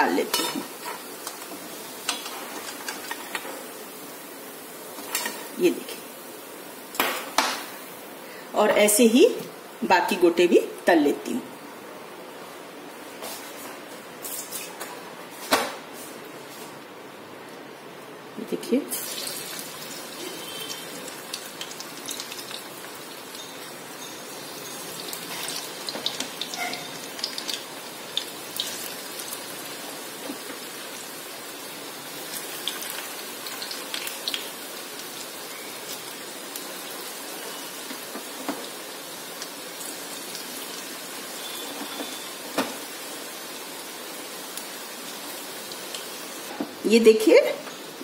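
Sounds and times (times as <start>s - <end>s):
hot oil sizzling and crackling: 0.0s - 10.2s, 18.9s - 48.0s.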